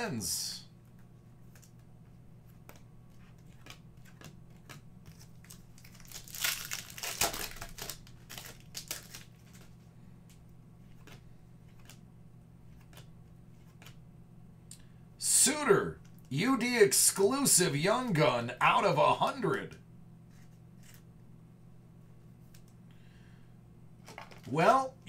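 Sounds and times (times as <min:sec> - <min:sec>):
cards clicking and rustling: 0:00.9 - 0:12.0, 0:12.7 - 0:14.0, 0:20.3 - 0:21.1, 0:24.0 - 0:24.5
foil wrapper crinkling: 0:02.7 - 0:09.8, 0:24.0 - 0:24.5.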